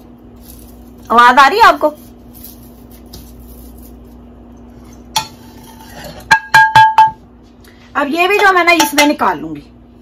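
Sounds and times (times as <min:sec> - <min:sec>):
spatula knocking metal pan: 0:06.2 - 0:07.2, 0:08.4 - 0:09.4.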